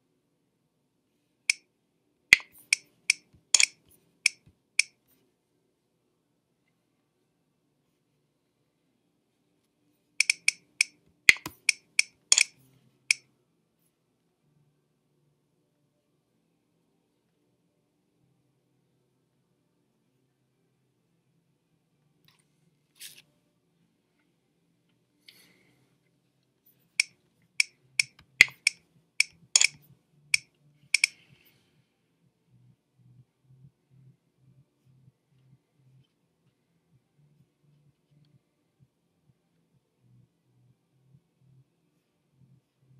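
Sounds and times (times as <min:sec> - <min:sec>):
computer mouse clicks: 0:02.3 - 0:05.0, 0:10.2 - 0:13.2, 0:27.0 - 0:31.2.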